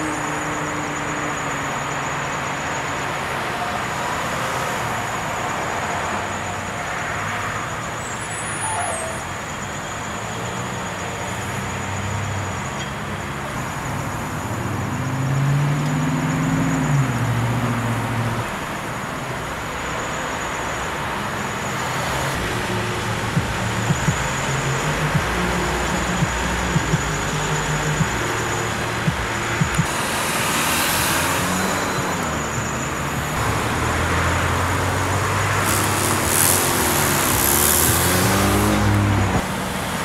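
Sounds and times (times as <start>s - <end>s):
road traffic noise: 0.0s - 40.0s
vehicle engine passing by: 21.9s - 40.0s.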